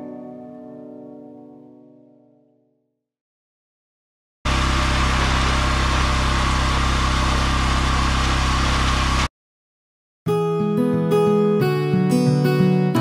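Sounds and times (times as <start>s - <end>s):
cleaning machine engine running: 4.5s - 9.3s.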